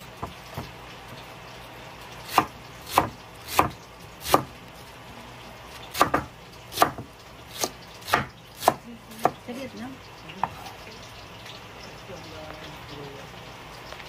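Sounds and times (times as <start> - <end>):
knife cutting cabbage: 2.2 - 4.6, 5.7 - 9.6.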